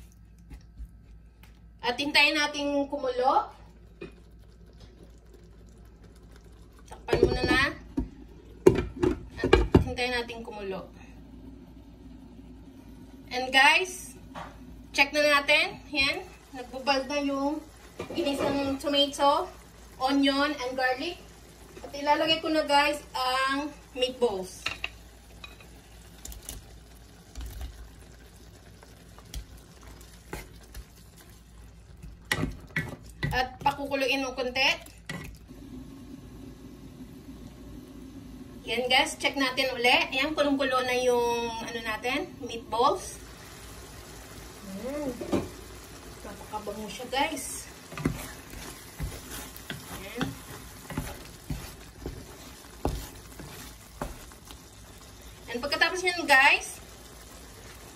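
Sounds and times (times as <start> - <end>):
tomato sauce bubbling: 0.0 - 57.9
wooden spatula knocks and scrapes: 47.9 - 54.6.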